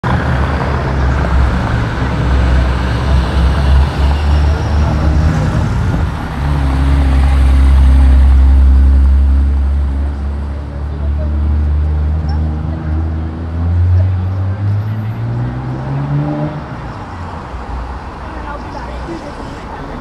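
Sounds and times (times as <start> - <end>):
road traffic: 0.0 - 20.0.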